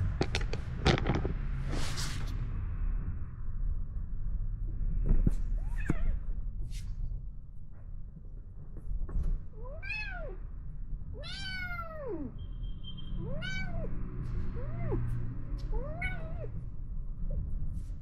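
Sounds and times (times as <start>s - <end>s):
kitten meowing: 5.6s - 6.2s, 9.6s - 10.4s, 11.2s - 12.4s, 13.2s - 14.0s, 14.6s - 15.1s, 15.7s - 16.6s.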